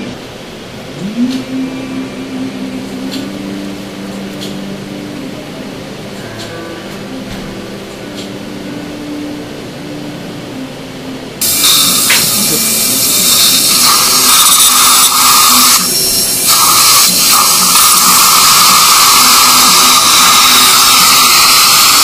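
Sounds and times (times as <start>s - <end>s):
dental drill running: 11.4s - 22.0s.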